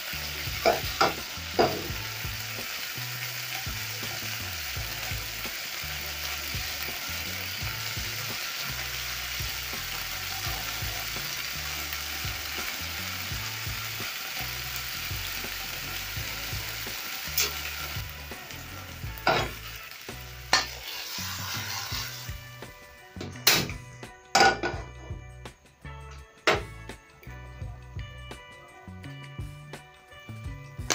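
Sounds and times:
liver sizzling in frying pan: 0.0s - 23.7s.

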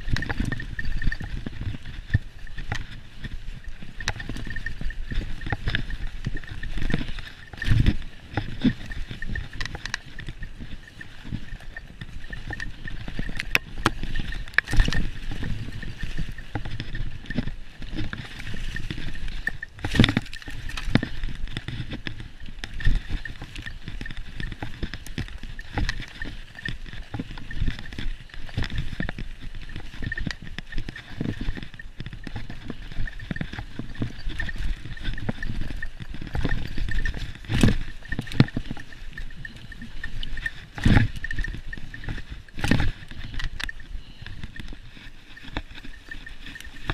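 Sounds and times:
bike knocking and rattling: 0.0s - 46.9s
bike tyres on dirt: 0.0s - 46.9s.

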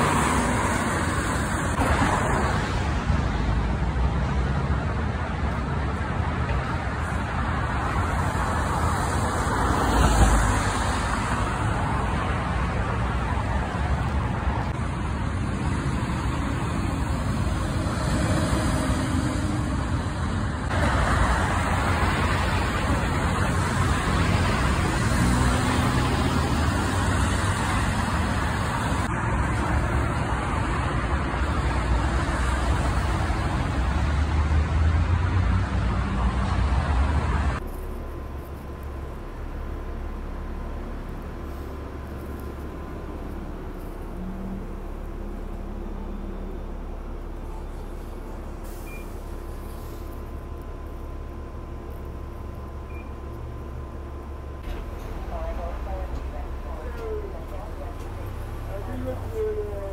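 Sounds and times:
highway traffic: 0.0s - 59.9s.

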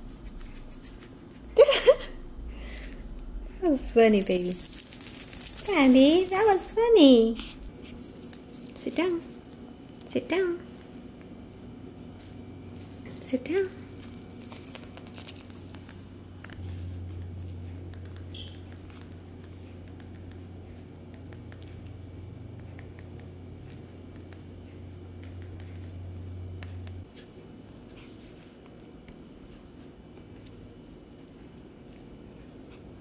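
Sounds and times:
low hum: 0.0s - 19.4s.

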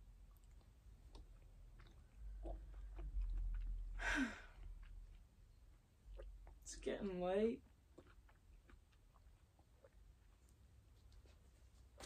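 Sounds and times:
person chewing: 0.0s - 6.6s, 7.6s - 12.0s
wet mouth clicks: 0.3s - 3.8s.

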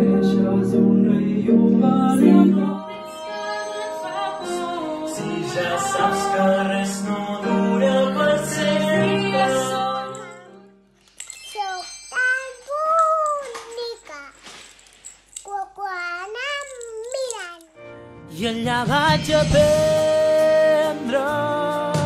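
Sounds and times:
man and woman singing: 0.0s - 10.6s, 18.3s - 22.0s
piano accompaniment: 0.0s - 10.8s, 17.8s - 22.0s.

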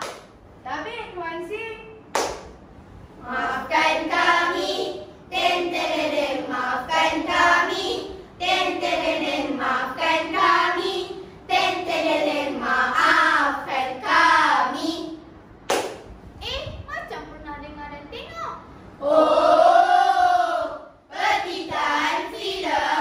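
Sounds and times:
children singing together: 3.2s - 15.2s, 19.0s - 23.0s.

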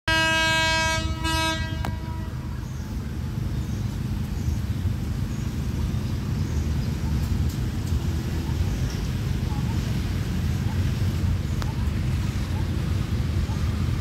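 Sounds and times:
locomotive horn blasts: 0.1s - 2.7s.

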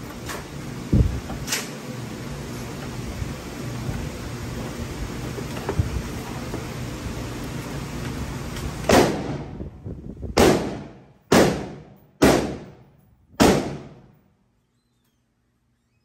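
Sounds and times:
gunshots with echo: 8.9s - 9.5s, 10.4s - 12.8s, 13.4s - 14.1s.

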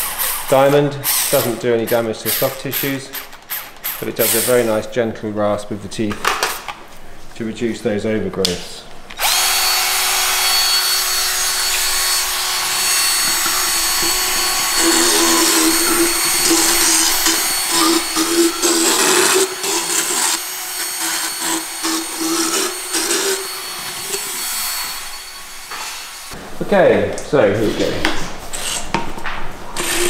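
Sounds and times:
power dental float whining: 9.1s - 26.4s
grinding against teeth: 10.7s - 20.4s.

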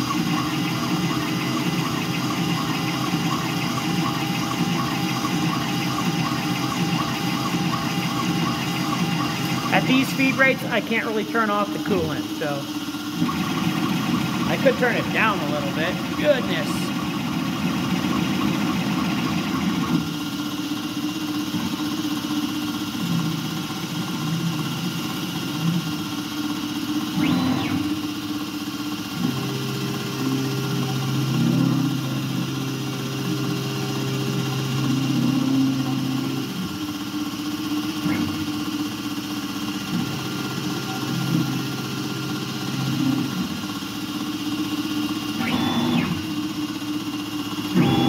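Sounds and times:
mill cutting metal: 0.0s - 21.0s, 29.2s - 48.0s
steady hum: 0.0s - 21.9s
brief whine: 47.7s - 48.0s.

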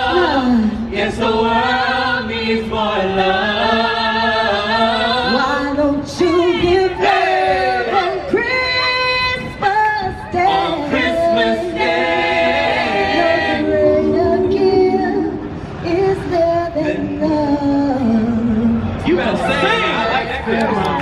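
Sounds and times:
woman singing lead: 4.5s - 18.9s
voices holding sustained chords: 10.5s - 17.6s.

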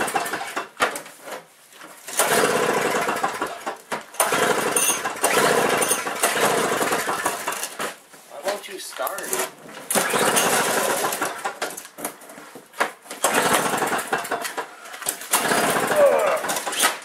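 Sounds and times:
snowblower engine sputtering: 2.2s - 7.7s, 9.9s - 11.6s, 13.2s - 14.6s, 15.2s - 16.8s.

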